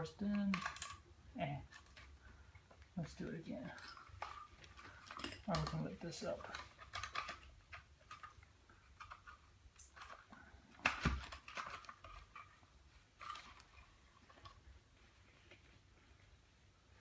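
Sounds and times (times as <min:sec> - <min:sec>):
small clatter: 0:01.6 - 0:16.1
plastic and metal case clicks: 0:06.4 - 0:12.5.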